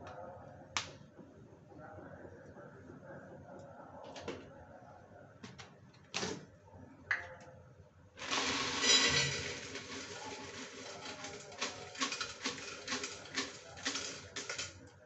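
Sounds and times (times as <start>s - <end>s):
peanuts roasting in iron pan: 8.2s - 15.0s.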